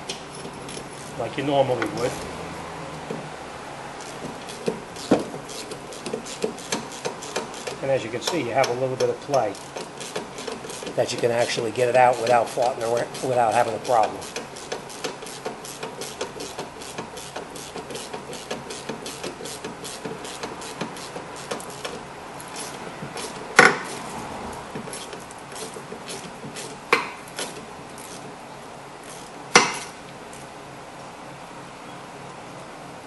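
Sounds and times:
ratchet wrench clicking: 4.0 - 7.8, 9.6 - 11.5, 12.2 - 24.1
sharp knocks: 25.9 - 27.6, 29.5 - 30.0.

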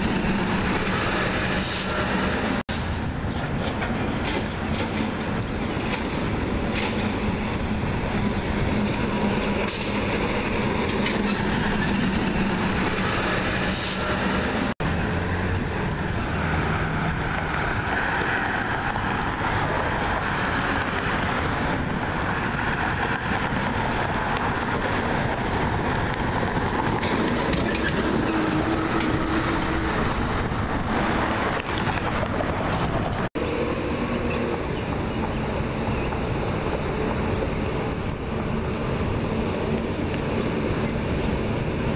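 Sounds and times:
road traffic noise: 0.0 - 41.9.

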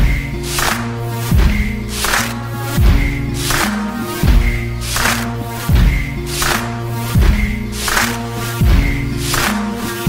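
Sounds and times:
sharp snare hits: 0.0 - 10.0
deep drum hits: 4.2 - 4.6.

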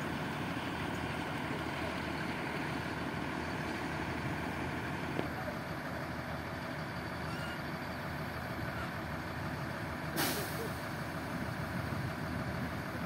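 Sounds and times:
diesel engines idling: 0.0 - 13.0
air brake hiss: 10.2 - 10.8.

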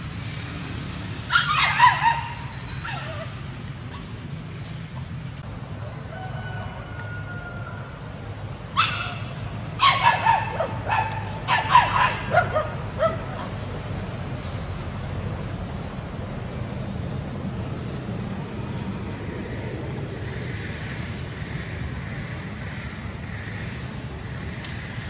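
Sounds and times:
small dogs barking and yelping: 1.3 - 4.1, 8.8 - 13.7.

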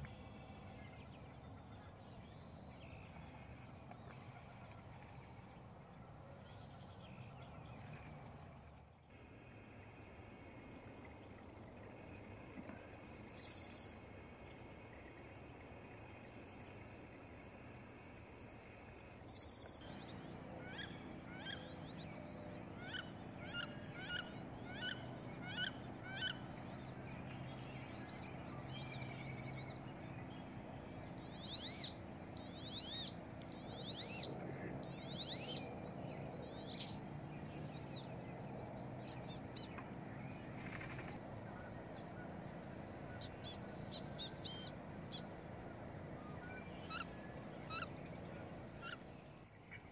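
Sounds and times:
faint bird calls: 19.8 - 29.9, 30.6 - 35.8, 39.1 - 49.9.

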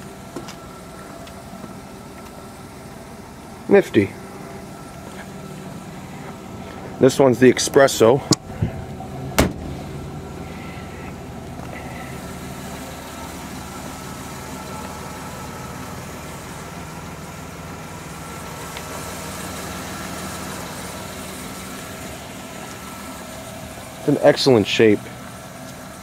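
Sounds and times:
van engine idling: 0.0 - 26.0.

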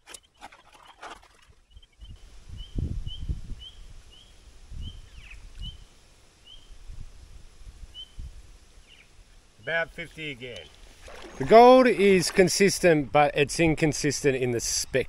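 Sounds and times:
bird chirping: 1.7 - 6.8.

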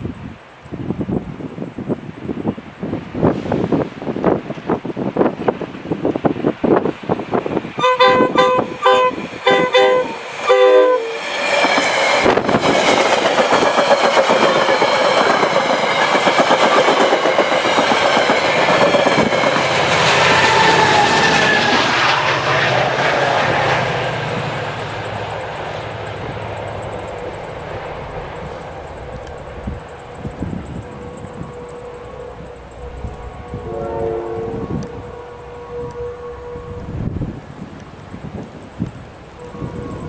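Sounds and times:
train rushing past: 1.1 - 40.0
train horn short blasts: 7.8 - 11.3, 30.7 - 37.4, 39.3 - 40.0.

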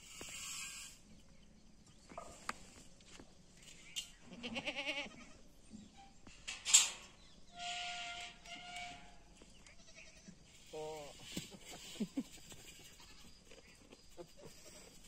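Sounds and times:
goat kid bleating: 4.3 - 5.4, 9.7 - 10.3.

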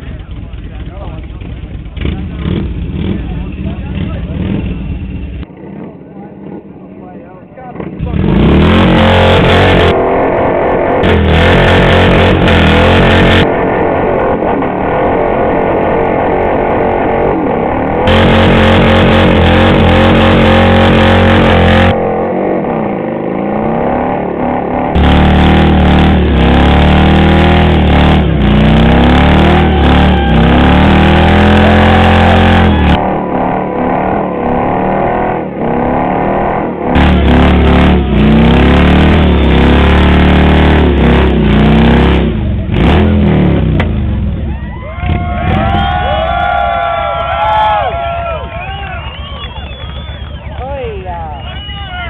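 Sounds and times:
motorcycle engine revving high: 0.0 - 50.6.

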